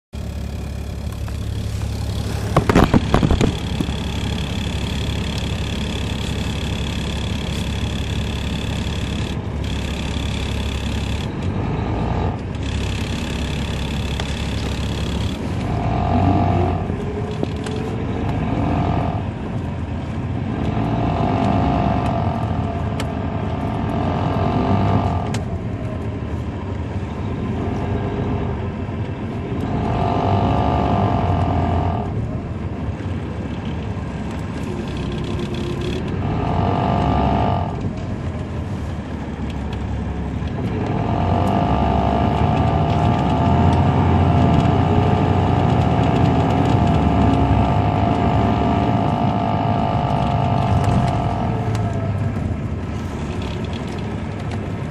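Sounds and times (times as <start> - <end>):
bus diesel engine running: 0.1 - 54.9
loud clatter: 0.5 - 11.3.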